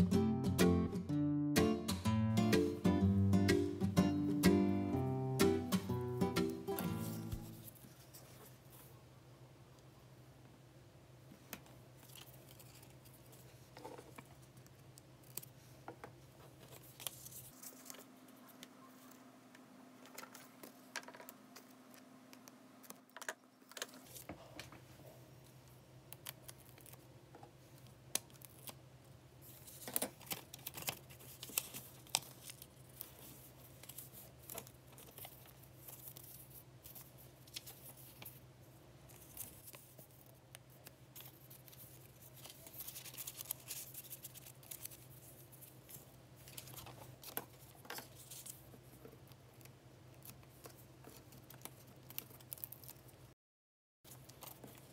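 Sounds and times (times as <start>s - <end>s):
faint low hum: 2.8s - 53.3s
paper and tape rustling: 6.7s - 8.9s, 12.0s - 19.2s, 29.4s - 53.4s, 54.1s - 54.9s.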